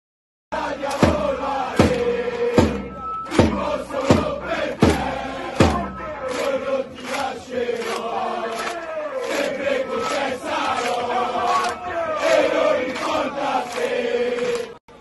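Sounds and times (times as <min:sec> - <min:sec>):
crowd chanting in unison: 0:00.5 - 0:14.8
drum beats: 0:00.6 - 0:06.6.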